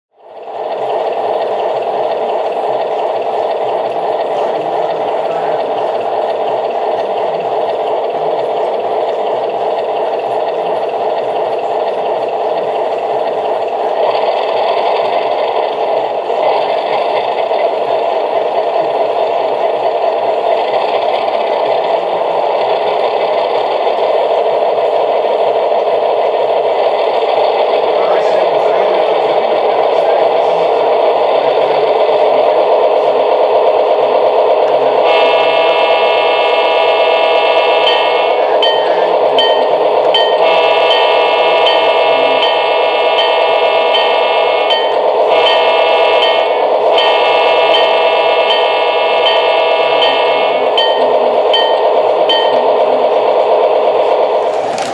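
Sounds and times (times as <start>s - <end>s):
diesel engine sound through small speaker: 0.4s - 15.2s.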